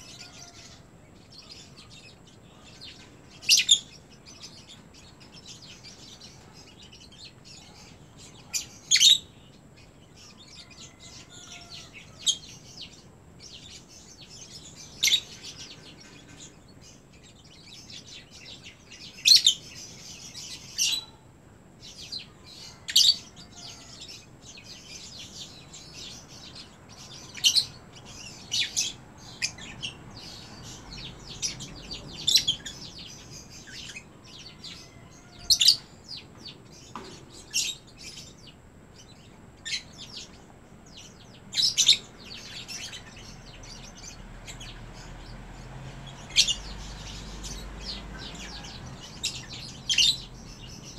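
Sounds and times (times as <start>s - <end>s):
birds chirping: 0.0s - 50.9s
soft bird twittering: 21.8s - 50.9s.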